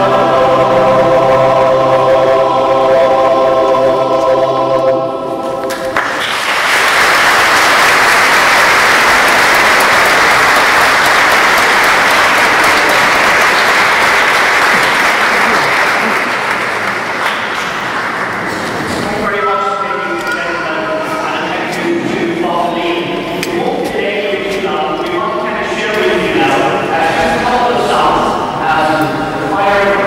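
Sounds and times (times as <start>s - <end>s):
choir holding a chord: 0.0s - 6.3s, 7.8s - 16.8s
audience applause: 5.7s - 19.0s.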